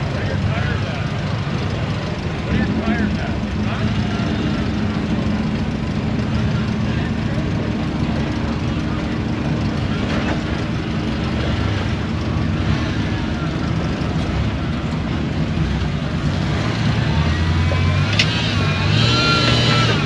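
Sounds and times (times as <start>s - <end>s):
engine revving: 0.0s - 20.0s.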